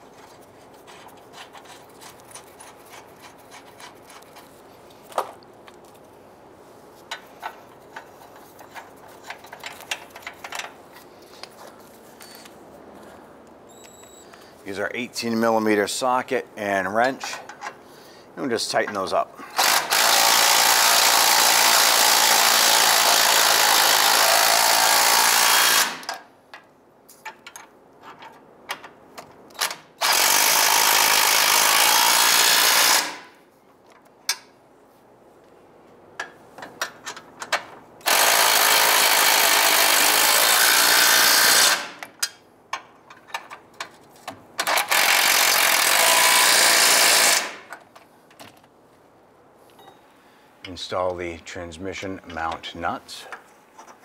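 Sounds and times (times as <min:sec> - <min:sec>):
impact wrench running nuts: 0:19.5 - 0:26.2, 0:29.6 - 0:33.3, 0:38.0 - 0:42.4, 0:44.6 - 0:47.7.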